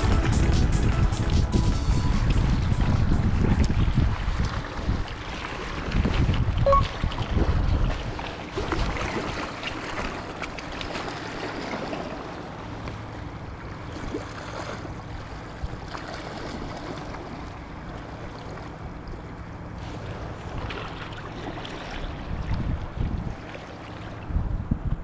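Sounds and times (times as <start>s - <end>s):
wind buffeting microphone: 0.0s - 9.1s, 22.0s - 23.5s, 24.1s - 25.0s
waves splashing against rocks: 2.5s - 18.7s.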